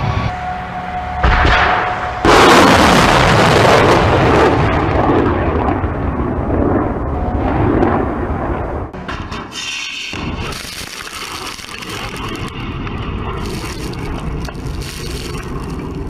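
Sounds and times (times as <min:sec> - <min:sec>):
missile launch blast: 0:01.2 - 0:06.8
rocket motors roaring: 0:10.1 - 0:16.0.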